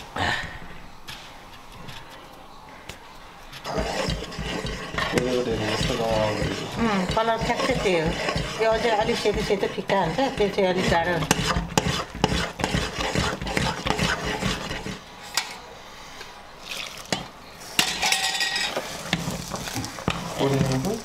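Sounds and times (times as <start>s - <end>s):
metal spoon scraping pot: 3.6s - 15.6s.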